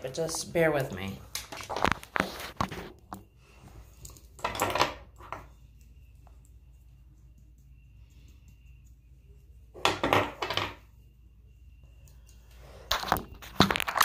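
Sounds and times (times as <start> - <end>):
small objects clattering on hard surface: 1.4 - 2.8, 9.8 - 10.8, 12.9 - 14.0.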